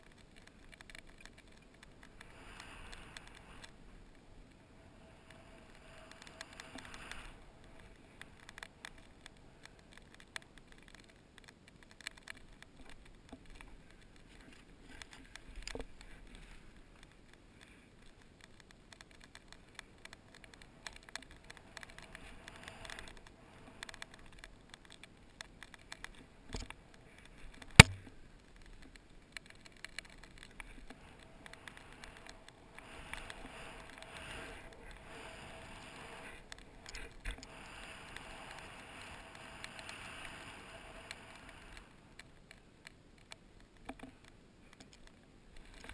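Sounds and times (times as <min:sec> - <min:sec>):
small clicks: 0:00.0 - 0:45.9
sharp knock: 0:27.8 - 0:28.0.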